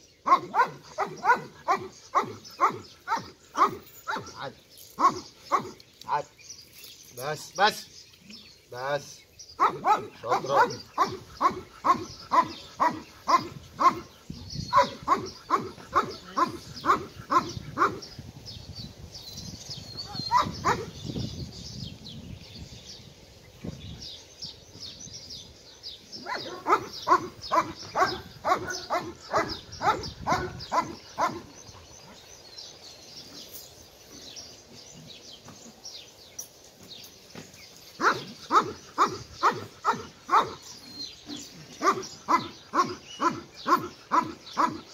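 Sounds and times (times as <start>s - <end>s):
dog barking: 0.3s - 4.4s, 5.0s - 5.8s, 9.6s - 14.0s, 14.7s - 18.0s, 20.1s - 20.9s, 26.2s - 31.5s, 38.0s - 40.6s, 41.8s - 44.8s.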